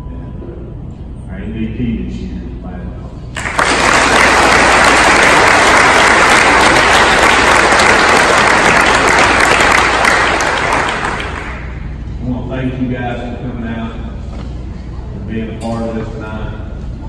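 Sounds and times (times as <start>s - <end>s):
audience clapping: 3.3s - 11.8s.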